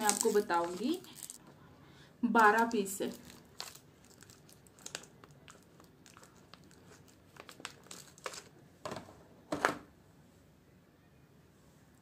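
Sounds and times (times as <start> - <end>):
plastic packaging crinkling: 0.0 - 1.4, 2.4 - 8.6.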